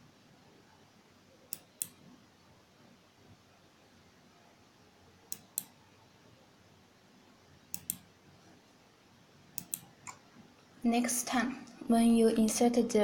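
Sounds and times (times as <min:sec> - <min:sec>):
computer mouse double-clicks: 0:01.5 - 0:02.0, 0:05.3 - 0:05.8, 0:07.7 - 0:08.1, 0:09.6 - 0:10.2.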